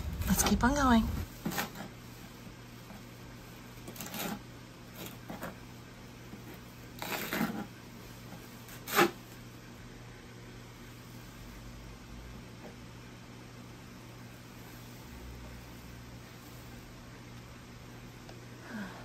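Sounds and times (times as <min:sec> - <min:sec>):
steady low hum: 0:00.0 - 0:03.9
handling rustles and scrapes: 0:00.0 - 0:09.5.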